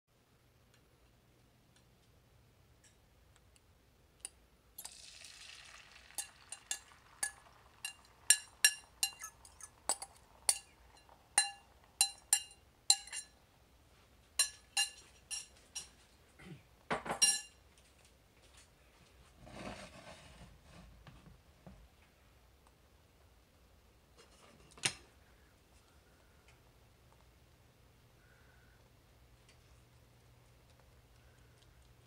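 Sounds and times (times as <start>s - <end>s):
egg hissing in hot skillet: 4.8s - 12.5s
fork scraping glass bowl: 5.9s - 13.3s.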